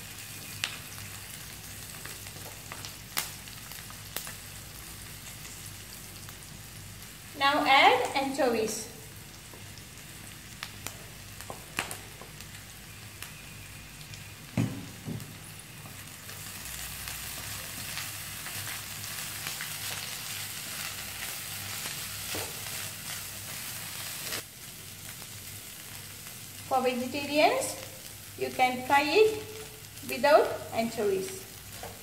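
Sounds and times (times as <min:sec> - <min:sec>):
oil sizzling in a wok: 0:00.0 - 0:32.0.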